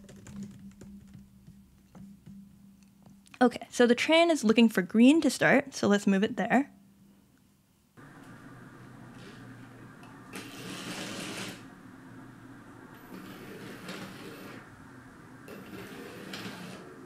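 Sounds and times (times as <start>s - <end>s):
wheels rolling on plastic track: 8.0s - 11.7s, 12.8s - 14.8s, 15.4s - 17.0s
toy train motor whirring: 10.3s - 11.7s, 12.9s - 14.6s, 15.5s - 17.0s.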